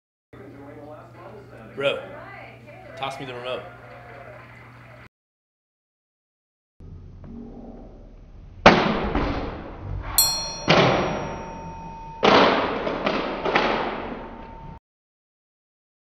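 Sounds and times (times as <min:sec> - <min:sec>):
bright metallic clang: 0:10.2 - 0:14.8.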